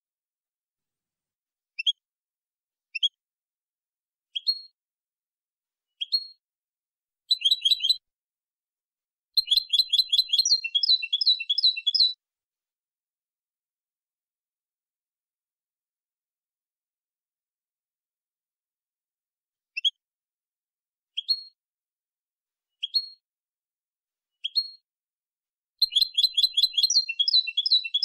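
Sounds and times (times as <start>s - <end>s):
goldfinch singing: 7.3s - 8.0s, 9.4s - 12.2s, 25.8s - 28.0s.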